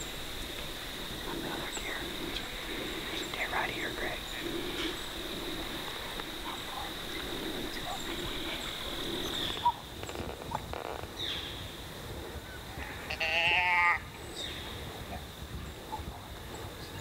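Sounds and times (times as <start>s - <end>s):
deer bleating: 12.8s - 14.0s.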